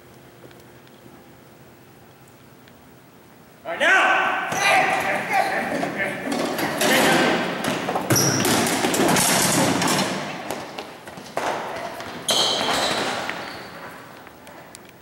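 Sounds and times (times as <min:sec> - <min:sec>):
short high squeaks: 0:12.3 - 0:14.0.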